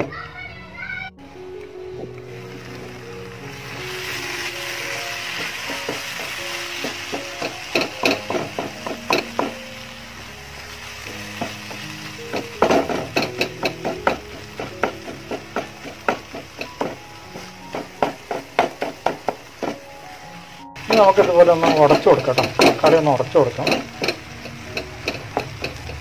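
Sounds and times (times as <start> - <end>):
frying sizzle: 1.3 - 26.0
spatula knocking and scraping pan: 5.4 - 9.6, 11.4 - 19.9, 20.8 - 23.0, 23.6 - 26.0.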